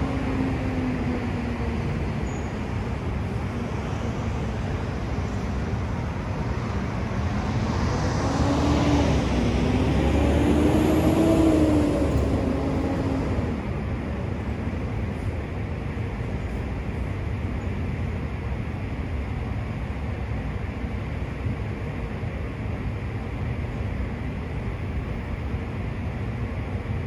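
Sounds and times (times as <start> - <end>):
street traffic rumble: 0.0 - 27.0
motor vehicle passing: 7.3 - 13.9.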